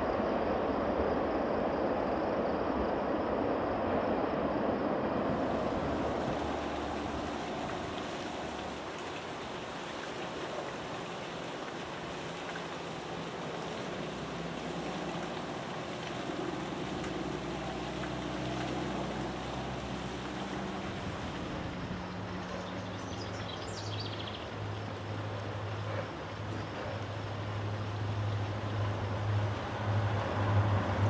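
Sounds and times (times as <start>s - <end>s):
freight train rumbling: 3.9s - 9.0s
waterfall splashing: 5.4s - 31.0s.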